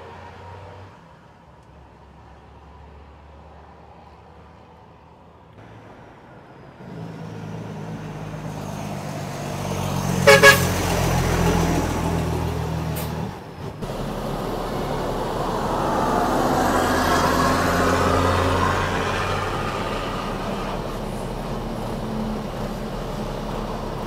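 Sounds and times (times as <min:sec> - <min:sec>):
truck diesel engine: 0:05.6 - 0:24.0
truck horn toots: 0:10.2 - 0:11.0.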